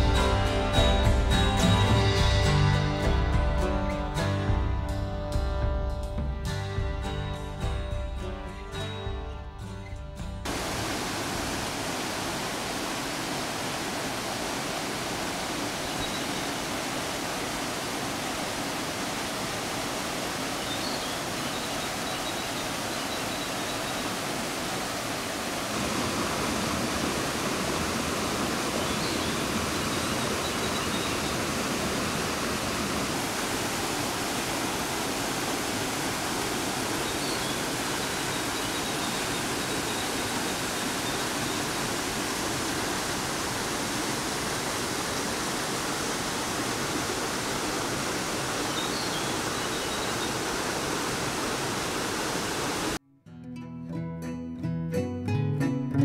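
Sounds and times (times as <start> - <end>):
waterfall splashing into pool: 10.4 - 53.0.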